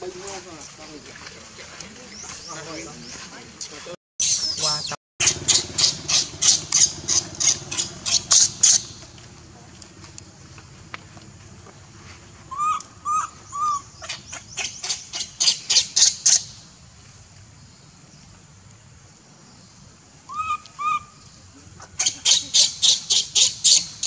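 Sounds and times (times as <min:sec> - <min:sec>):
baby monkey cooing: 0:12.5 - 0:15.5, 0:20.3 - 0:23.8
baby monkey shrill screeches: 0:12.5 - 0:16.4, 0:20.3 - 0:21.2.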